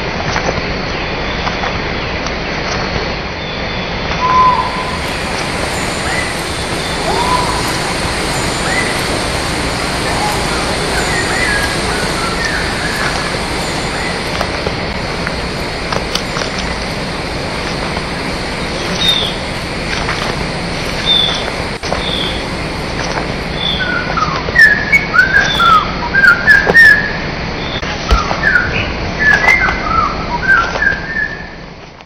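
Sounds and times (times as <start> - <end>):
slowed bird chirps: 4.2 - 22.4
steady hiss: 4.2 - 25.8.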